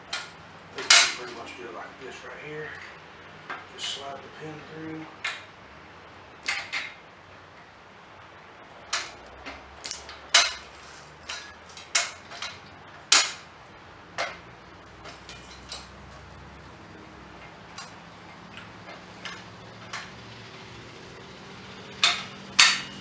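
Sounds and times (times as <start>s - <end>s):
metal clicks and clanks: 0.0s - 1.4s, 6.4s - 7.0s, 8.9s - 13.5s, 14.2s - 16.2s, 17.4s - 20.2s, 21.9s - 23.0s.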